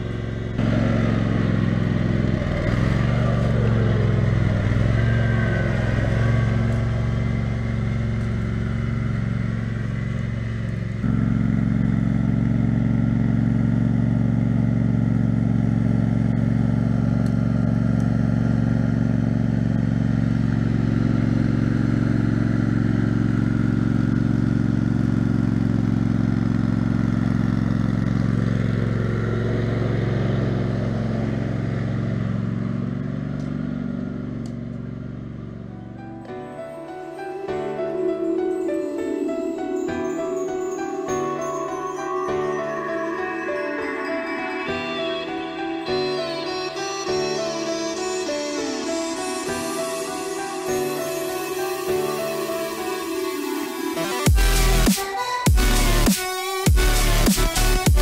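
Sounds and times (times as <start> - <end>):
tractor engine running under load: 0.0 - 36.3.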